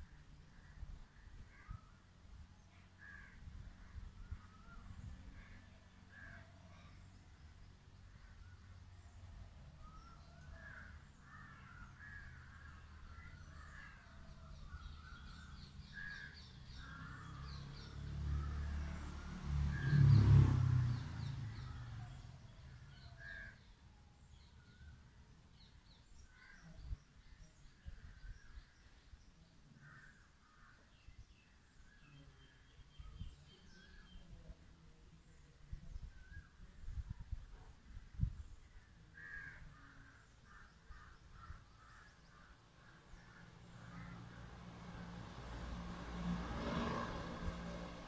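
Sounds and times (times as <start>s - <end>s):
birds calling: 20.8s - 25.0s, 37.9s - 44.5s.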